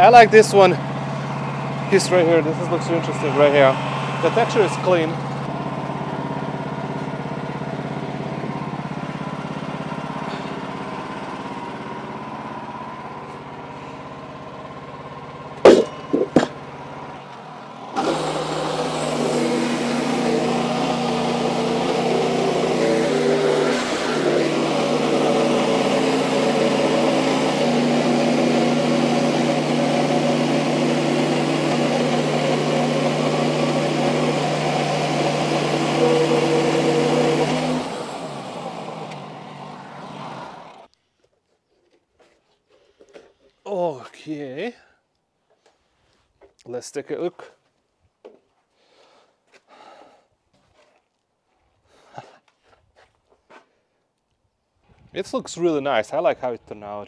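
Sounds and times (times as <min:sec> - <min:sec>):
sawmill engine running: 0:00.0 - 0:40.9
band blade cutting log: 0:15.6 - 0:16.6, 0:18.0 - 0:38.4
sharp knocks: 0:15.6 - 0:16.6.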